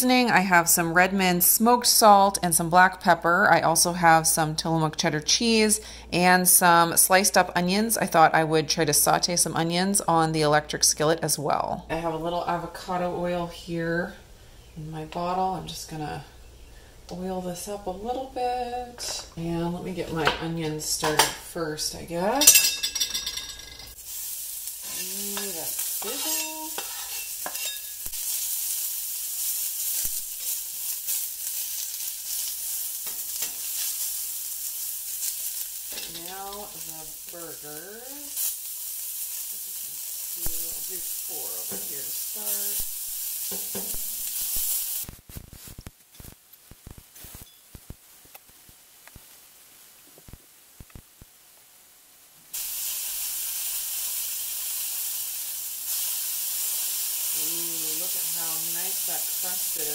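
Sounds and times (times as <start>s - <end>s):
onions sizzling on griddle: 22.3s - 48.0s, 52.5s - 59.9s.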